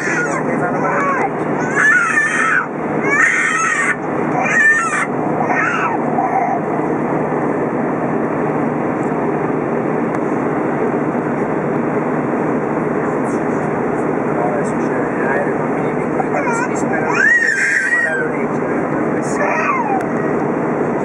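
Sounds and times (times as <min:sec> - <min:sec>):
airliner cabin roar: 0:00.0 - 0:21.0
person's wavering voice: 0:16.2 - 0:18.4.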